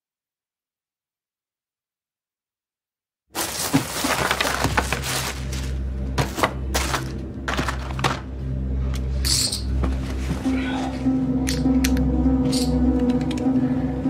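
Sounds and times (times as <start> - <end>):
packaging crackling and rustling: 3.4 - 8.3
low drone of film score: 5.4 - 14.0.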